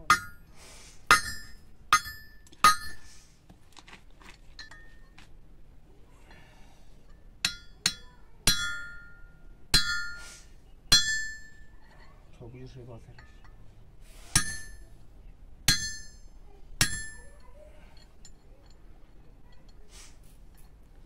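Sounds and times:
hammer clanking on metal: 0:00.0 - 0:00.5, 0:01.1 - 0:03.1, 0:07.4 - 0:10.2, 0:10.9 - 0:11.9, 0:14.3 - 0:14.9, 0:15.7 - 0:17.6.

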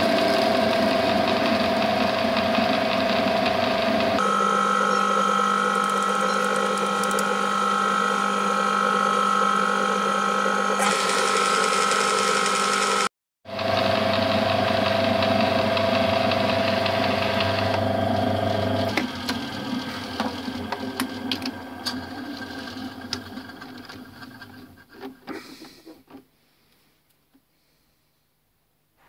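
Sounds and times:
metal lathe whining: 0:00.0 - 0:24.6.

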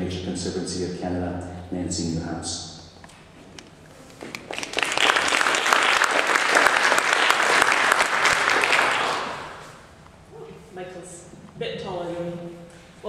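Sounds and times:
audience applauding: 0:04.4 - 0:09.8.

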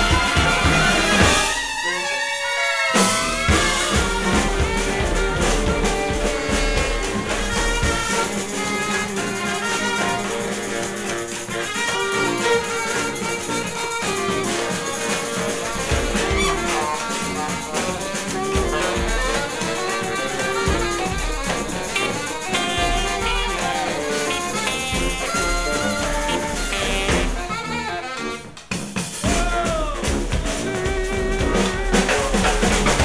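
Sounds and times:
drums: 0:00.0 - 0:33.0
horns holding long notes: 0:00.0 - 0:33.0
bass line: 0:03.0 - 0:10.0, 0:14.8 - 0:28.0.

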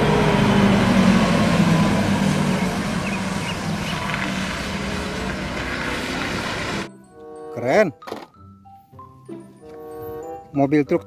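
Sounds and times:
bus engine humming: 0:00.0 - 0:06.9.

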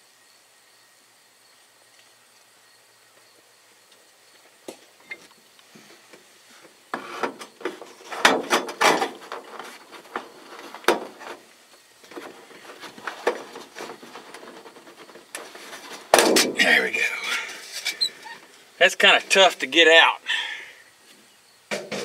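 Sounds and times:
knocking and scraping of trim: 0:06.6 - 0:11.5, 0:12.1 - 0:16.8.

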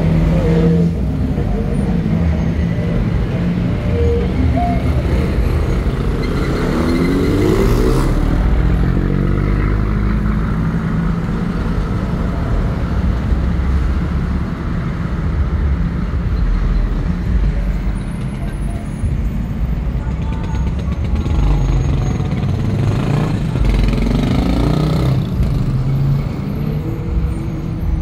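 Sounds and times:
vehicle engine revving: 0:20.8 - 0:26.5.

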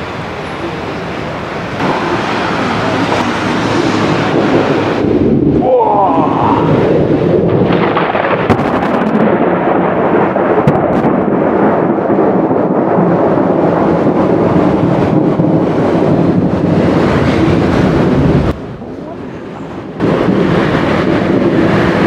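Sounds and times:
rolling thunder: 0:00.0 - 0:22.0
steady rain: 0:00.0 - 0:22.0
thunder crackles: 0:00.0 - 0:22.0.

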